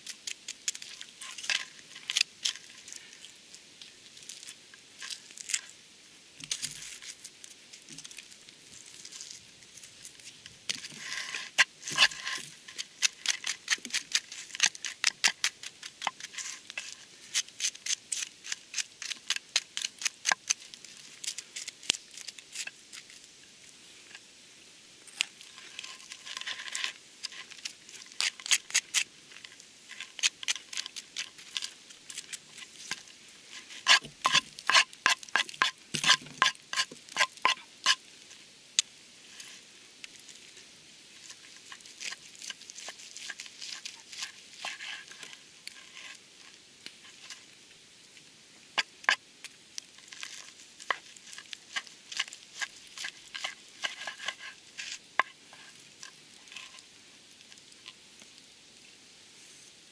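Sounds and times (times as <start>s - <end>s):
knife cutting crisp crust: 10.8s - 22.6s, 26.3s - 29.1s, 33.6s - 38.0s, 41.2s - 46.2s, 50.2s - 55.0s
blade scraping crumbs across board: 10.8s - 22.7s, 29.9s - 38.0s, 41.3s - 46.2s, 50.2s - 56.8s.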